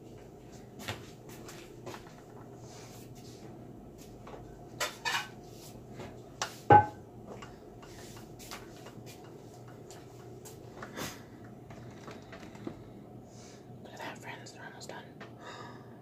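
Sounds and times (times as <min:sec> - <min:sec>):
faint steady hum: 0:00.0 - 0:16.0
kitchenware knocking and clattering: 0:06.7 - 0:07.0.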